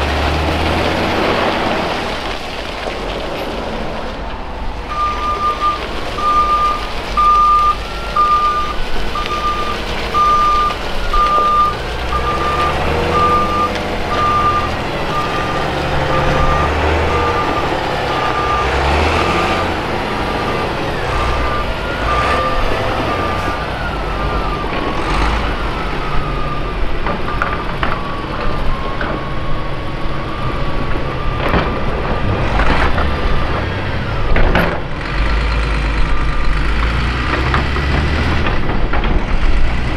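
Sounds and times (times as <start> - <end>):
diesel engines under load: 0.0 - 39.9
reversing alarm beeping: 4.9 - 29.2.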